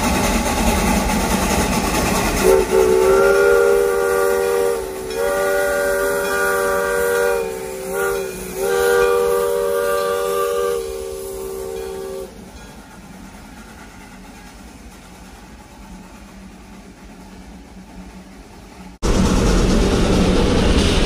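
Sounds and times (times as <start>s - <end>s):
steam hiss: 0.0s - 21.0s
steam whistle blasts: 2.4s - 12.4s.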